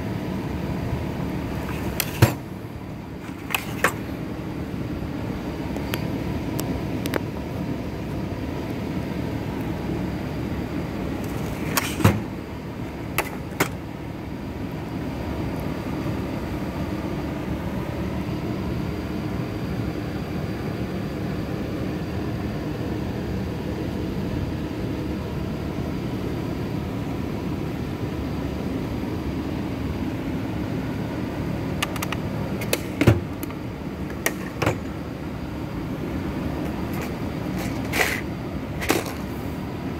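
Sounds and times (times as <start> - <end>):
low mechanical hum: 0.0 - 39.9
toolbox drawers clacking: 1.6 - 2.5, 3.2 - 4.1, 11.2 - 12.4, 13.1 - 13.8, 31.8 - 33.5, 34.1 - 35.0, 36.7 - 39.3
tools shifting in drawers: 1.6 - 2.5, 3.2 - 4.1, 11.2 - 12.3, 13.2 - 13.8, 34.1 - 34.9, 36.7 - 39.3.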